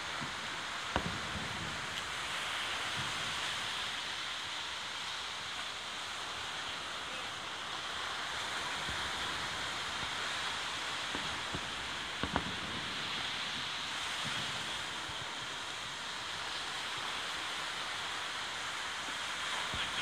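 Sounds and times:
distant fireworks bangs: 0.0 - 3.8, 8.7 - 16.8
surf washing on beach: 0.0 - 20.0.

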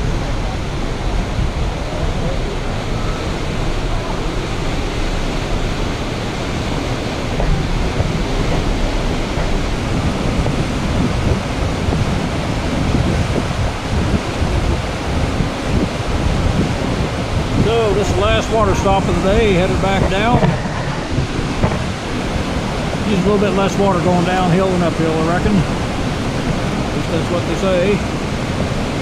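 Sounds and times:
steady rushing roar: 0.0 - 29.0
wind buffeting microphone: 0.0 - 29.0.

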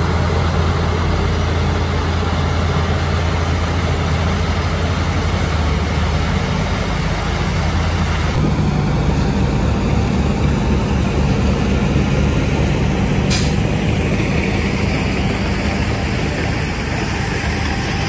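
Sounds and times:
heavy diesel engine under load: 0.0 - 18.0.

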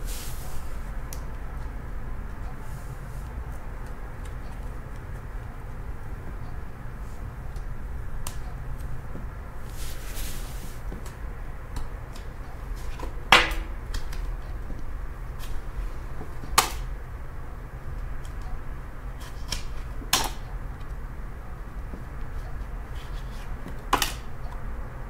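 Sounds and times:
card rustle: 22.9 - 24.3
cards shuffled by hand: 22.9 - 24.3
sharp card snaps: 23.9 - 24.3.

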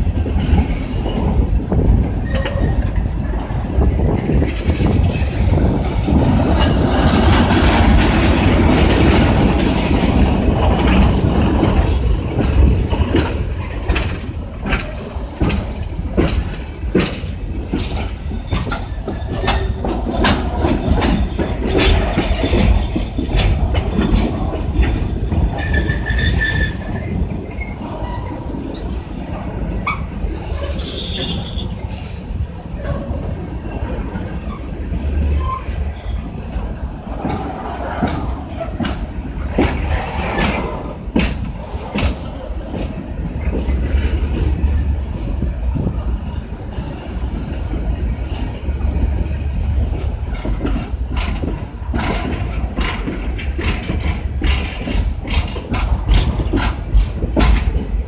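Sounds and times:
freight train rumbling: 0.0 - 58.0
wheels clacking on rail joints: 0.0 - 58.0
train wheel squeal: 2.2 - 3.0, 18.3 - 29.0, 29.8 - 33.2, 33.8 - 36.5, 49.9 - 50.9.

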